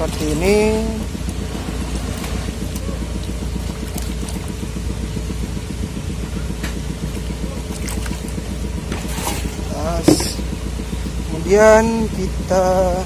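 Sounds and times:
faint water splashes: 0:00.0 - 0:04.8, 0:06.9 - 0:10.6
small engine idling: 0:00.0 - 0:13.0.

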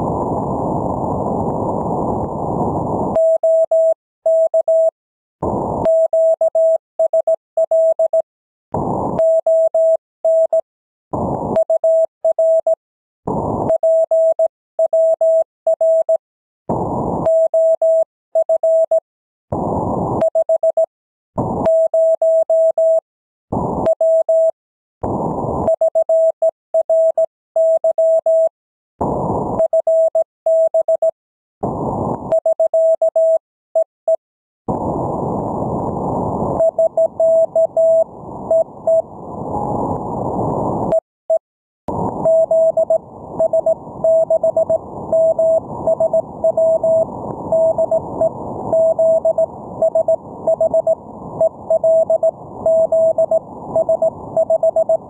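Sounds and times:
morse code tone: 0:03.2 - 0:04.9, 0:09.2 - 0:10.6, 0:25.7 - 0:28.5, 0:29.6 - 0:31.2, 0:36.6 - 0:39.8, 0:42.2 - 0:55.0.

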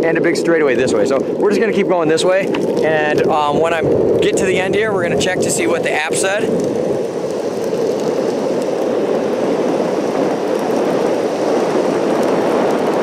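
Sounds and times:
skateboard wheels rolling on asphalt: 0:00.0 - 0:13.0.

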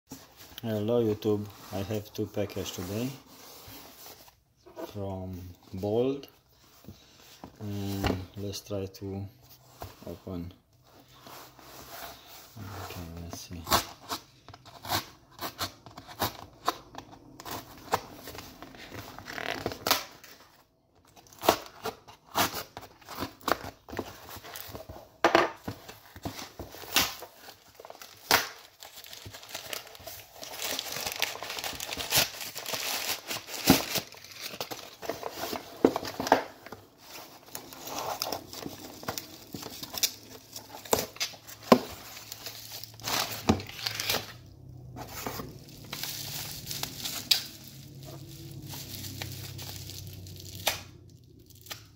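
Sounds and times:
packing paper crinkling: 0:25.9 - 0:51.9
cardboard box tearing: 0:26.2 - 0:36.4.

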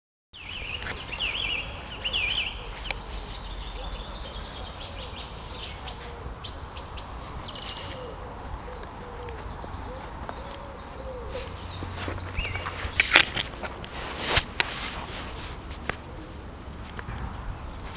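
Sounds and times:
birds singing and chirping: 0:00.4 - 0:13.5.

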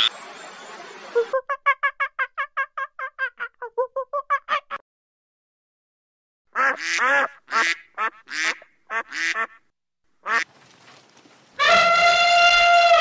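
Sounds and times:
elephant trumpeting: 0:11.6 - 0:13.0
goose honking: 0:11.6 - 0:13.0.

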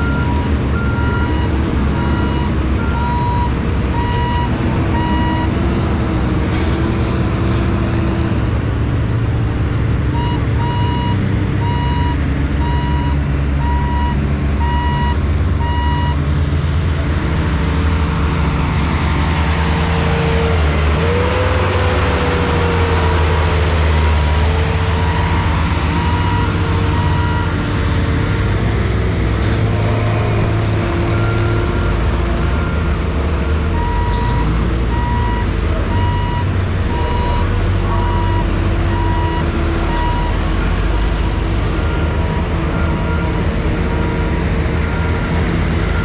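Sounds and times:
reversing alarm beeping: 0:00.0 - 0:05.5, 0:10.1 - 0:16.2, 0:25.0 - 0:27.6, 0:33.8 - 0:40.7
heavy vehicle engine running: 0:00.0 - 0:46.0.

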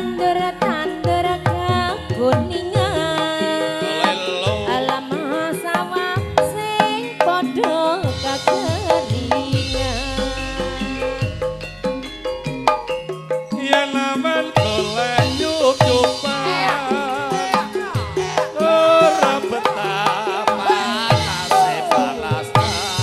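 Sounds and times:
woman singing: 0:00.0 - 0:11.4, 0:13.7 - 0:23.0
hand drum strokes bending pitch: 0:00.0 - 0:23.0
sustained metallophone tones: 0:00.0 - 0:23.0
gamelan ensemble playing: 0:02.8 - 0:23.0.

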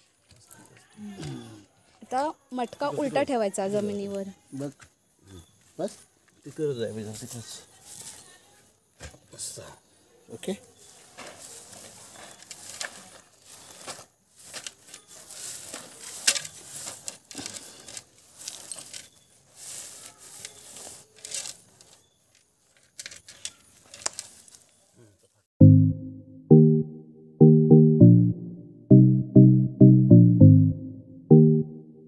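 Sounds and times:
hands scraping gritty soil: 0:11.1 - 0:22.3
loud music: 0:25.6 - 0:32.0.

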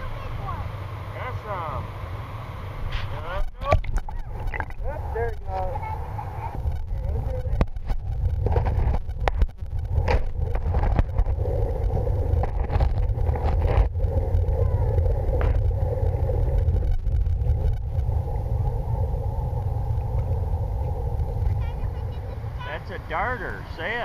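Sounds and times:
muffled underwater rumble: 0:00.0 - 0:24.0.

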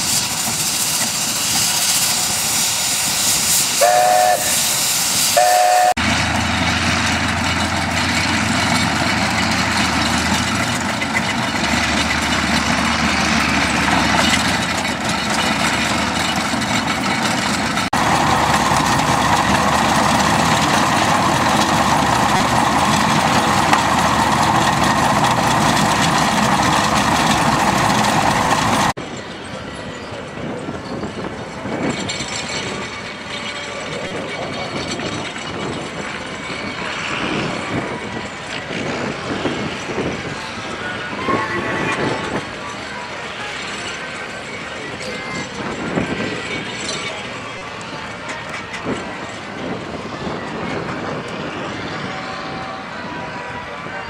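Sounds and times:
steam engines working: 0:00.0 - 0:54.0
steam whistle toots: 0:01.8 - 0:06.0, 0:40.8 - 0:42.4, 0:51.6 - 0:54.0.

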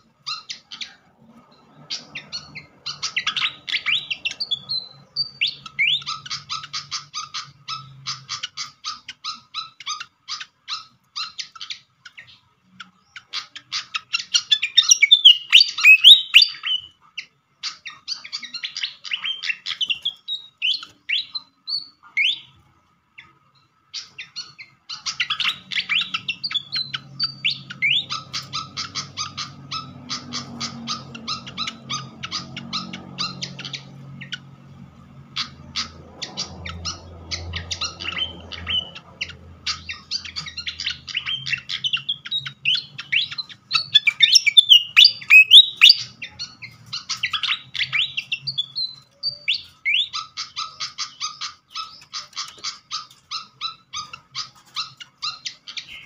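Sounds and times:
bird chattering calls: 0:01.6 - 0:16.8, 0:24.0 - 0:34.4, 0:35.3 - 0:56.0
bird upward-sweeping whistles: 0:14.7 - 0:16.8, 0:42.7 - 0:46.1.

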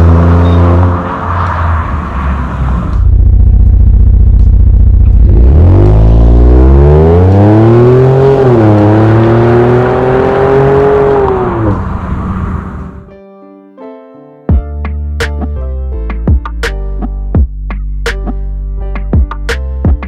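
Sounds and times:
car exhaust accelerating: 0:00.0 - 0:13.1
background music: 0:13.1 - 0:20.0.

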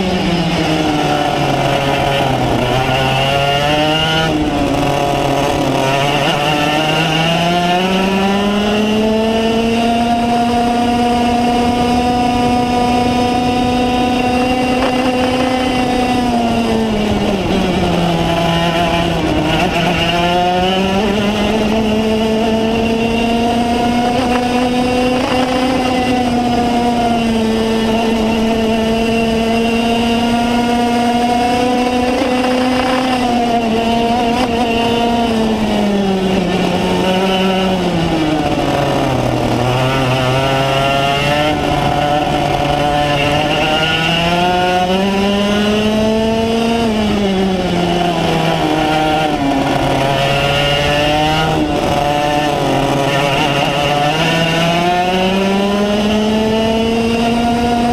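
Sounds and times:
racing kart engine: 0:00.0 - 0:57.9.

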